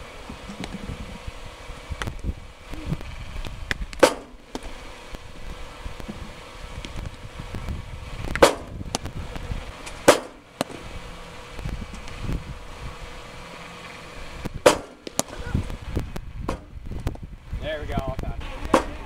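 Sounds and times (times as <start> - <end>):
low outdoor rumble: 0.0 - 19.0
baseballs smacking catcher's gear: 3.9 - 4.8, 9.8 - 10.8, 14.6 - 15.5.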